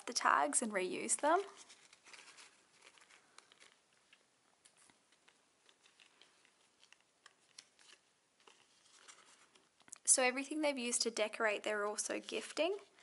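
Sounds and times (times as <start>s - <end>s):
paper tags rustling and clicking: 1.2s - 10.0s.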